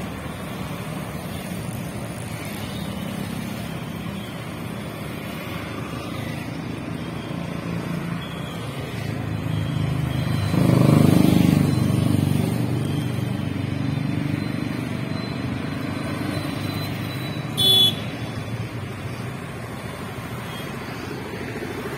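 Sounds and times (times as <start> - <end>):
motorcycles passing: 0.0 - 21.9
traffic noise: 0.0 - 21.9
vehicle horn toot: 17.6 - 18.2.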